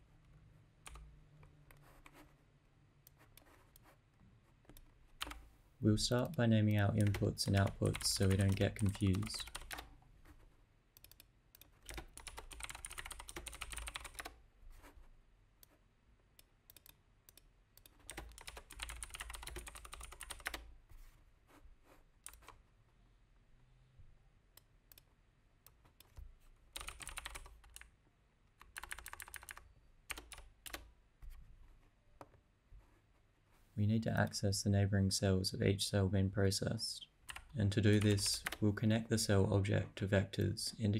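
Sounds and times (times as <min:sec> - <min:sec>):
keyboard typing: 0:00.8 - 0:01.1, 0:04.7 - 0:05.5, 0:06.2 - 0:10.4, 0:11.0 - 0:14.9, 0:16.7 - 0:20.7, 0:22.2 - 0:22.6, 0:25.7 - 0:27.9, 0:28.6 - 0:30.9, 0:37.3 - 0:38.6.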